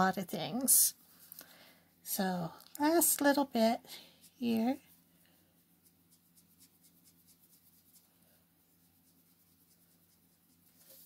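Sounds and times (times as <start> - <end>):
marker strokes on paper: 2.8 - 11.0.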